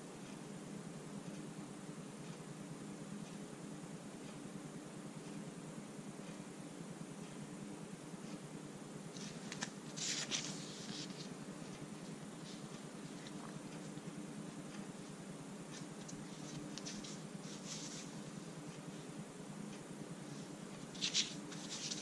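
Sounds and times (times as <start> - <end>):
faint steady hum: 0.0 - 22.0
strap and paper label rustling: 9.2 - 11.8, 15.7 - 18.2, 20.9 - 22.0.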